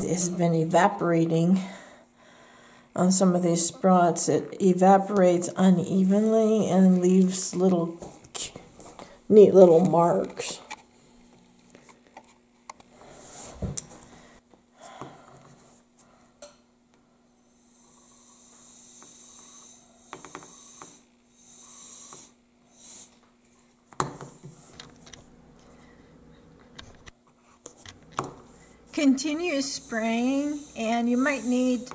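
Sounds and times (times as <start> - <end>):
compressed air duster hissing: 17.5 - 23.2, 28.5 - 31.9.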